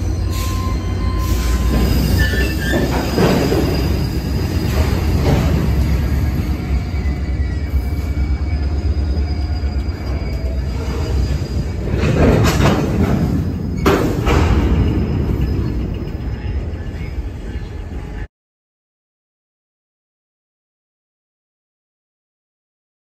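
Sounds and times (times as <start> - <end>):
wheel squeal: 0.0 - 17.8
train wheels rumbling on rails: 0.0 - 18.3.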